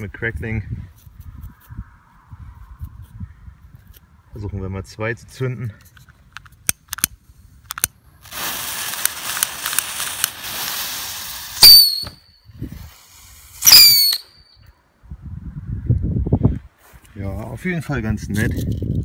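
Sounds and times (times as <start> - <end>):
fuses hissing: 8.2 - 11.7
rocket whistling: 10.2 - 12.6, 13.5 - 14.7.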